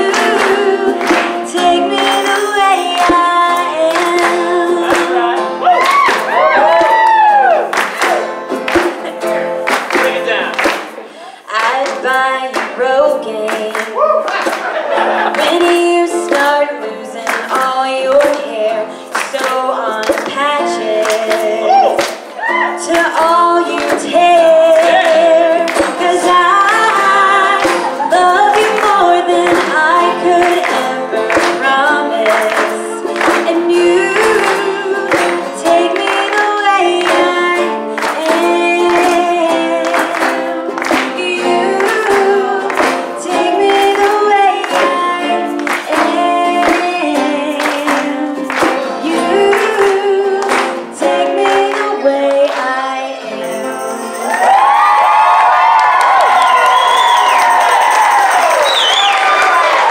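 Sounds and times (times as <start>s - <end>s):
woman singing into a microphone: 0.0s - 5.6s, 11.2s - 14.2s, 15.1s - 54.3s
steady percussion beat: 56.4s - 58.7s.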